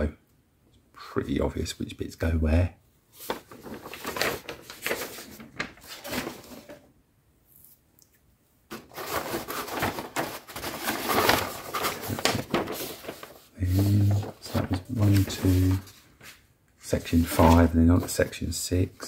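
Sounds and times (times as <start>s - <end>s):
paper sheets rustling: 3.1s - 6.9s, 8.7s - 18.9s.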